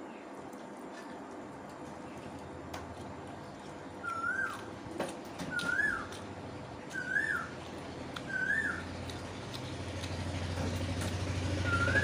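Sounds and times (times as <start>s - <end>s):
animal's whistled call: 4.0s - 4.7s, 5.5s - 6.2s, 6.9s - 7.5s, 8.3s - 8.9s, 11.6s - 12.0s.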